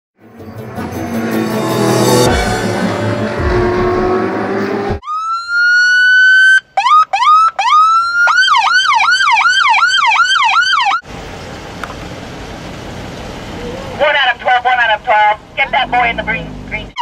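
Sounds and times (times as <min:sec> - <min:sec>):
police siren wailing and yelping: 0:05.0 - 0:11.0.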